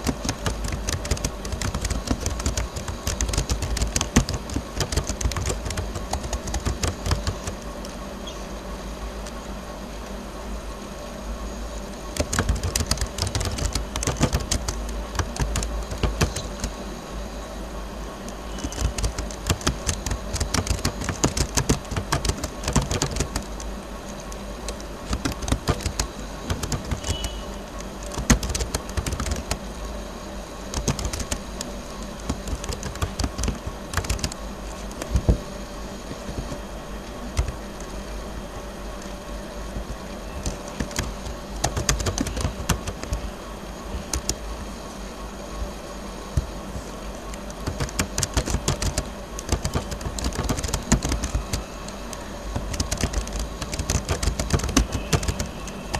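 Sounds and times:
computer keyboard typing: 0.0 - 8.0, 12.1 - 16.8, 18.3 - 29.8, 30.7 - 38.0, 39.0 - 44.7, 47.3 - 55.9
steady low hum: 0.0 - 55.9.

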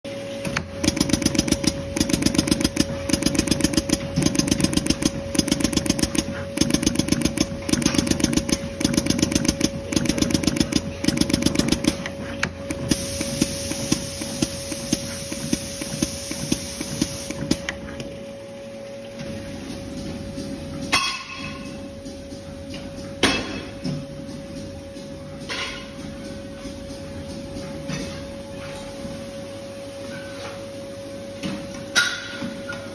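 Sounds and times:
machine whine: 0.1 - 19.3
machine clicking rattle: 0.5 - 17.7.

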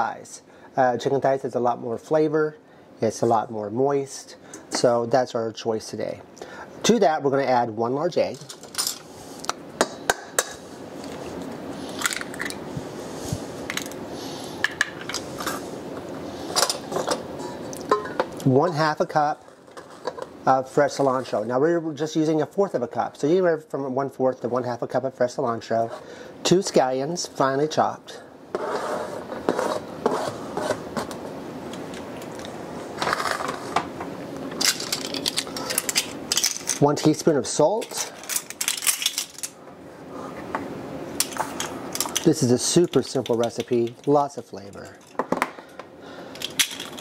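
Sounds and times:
cutting board scraping over bowl: 28.5 - 31.0.

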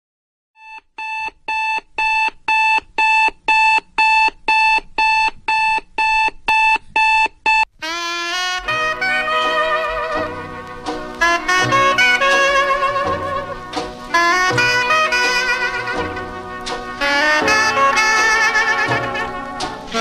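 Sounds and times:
brass music: 7.8 - 20.0.

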